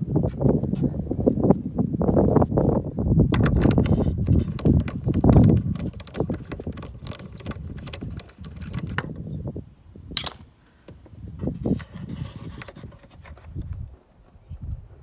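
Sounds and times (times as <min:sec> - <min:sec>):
small clicks and taps: 0:03.4 - 0:09.2
screwdriver clicking and scraping: 0:03.4 - 0:09.4, 0:10.1 - 0:13.8.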